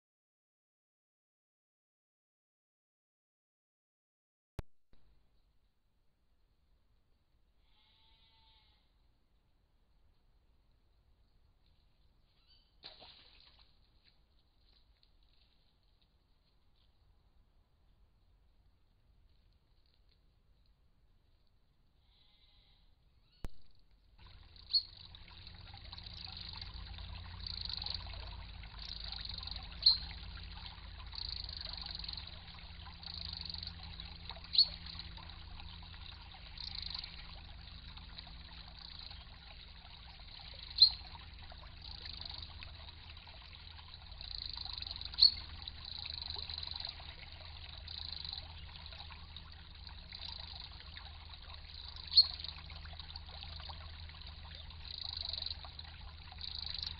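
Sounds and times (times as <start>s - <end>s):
stream trickling over stones: 10.2s - 21.6s, 24.1s - 56.9s.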